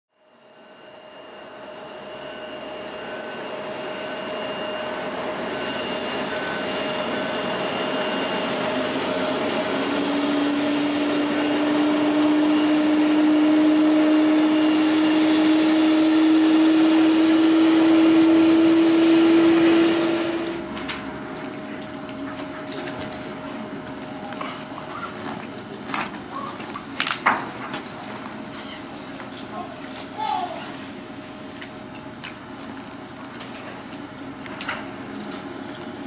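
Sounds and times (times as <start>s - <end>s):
jet engines running: 0.4s - 36.0s
whining tone: 1.7s - 25.5s.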